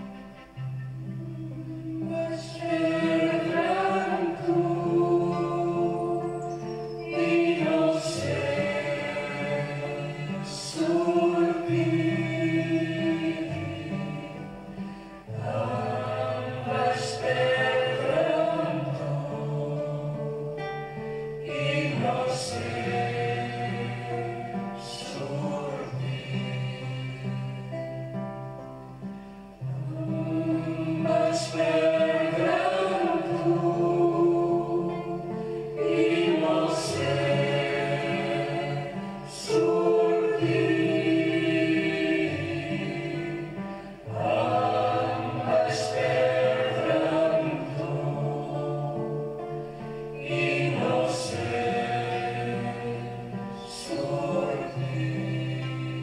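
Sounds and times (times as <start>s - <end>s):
choir singing long phrases: 0.0s - 56.0s.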